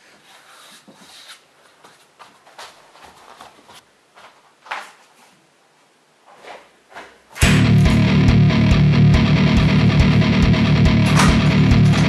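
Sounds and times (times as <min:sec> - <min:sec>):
rustles and shuffles: 0:00.0 - 0:07.4.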